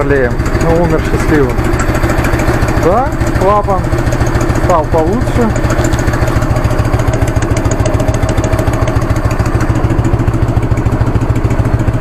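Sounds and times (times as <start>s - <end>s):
motorcycle engine idling: 0.0s - 12.0s
valve-train ticking: 0.0s - 12.0s.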